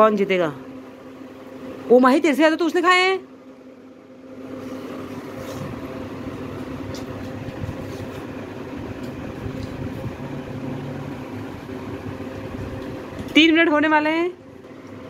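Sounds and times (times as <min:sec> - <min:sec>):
machine hum with low rumble: 0:00.0 - 0:15.0.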